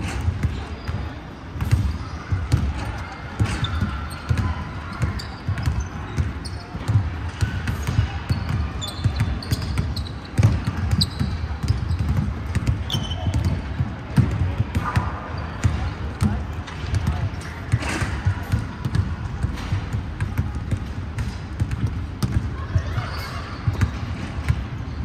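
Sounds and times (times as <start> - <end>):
sneaker squeaks: 0.0 - 16.4, 21.6 - 25.0
basketballs bouncing on wood floor: 0.0 - 25.0.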